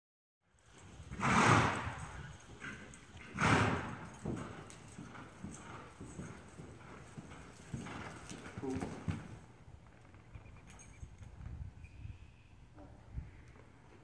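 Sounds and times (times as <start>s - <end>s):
hooves thudding on sand: 0.7s - 10.5s.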